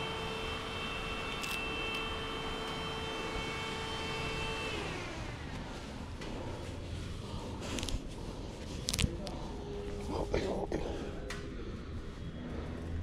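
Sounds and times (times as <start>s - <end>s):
motor whine spinning down: 0.0s - 5.9s.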